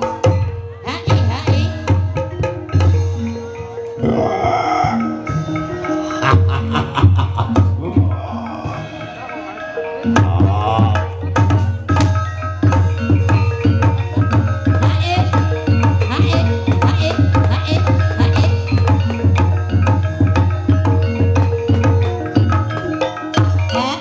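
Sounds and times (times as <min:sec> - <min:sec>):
ringing keyed percussion: 0:00.0 - 0:24.0
hand drums beating quick rhythm: 0:04.9 - 0:09.2, 0:10.0 - 0:24.0.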